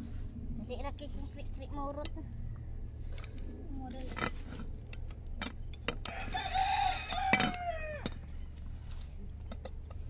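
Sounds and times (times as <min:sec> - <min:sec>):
rooster crowing: 0:06.0 - 0:08.2.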